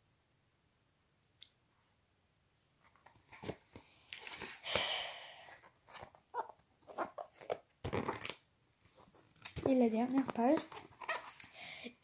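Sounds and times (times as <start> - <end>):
book pages rustling: 2.8 - 4.6, 5.5 - 11.6.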